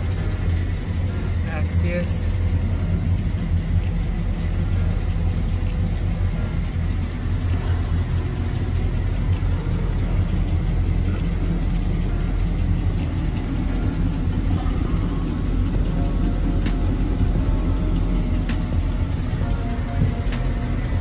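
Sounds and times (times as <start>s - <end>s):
boat engines idling: 0.0s - 21.0s.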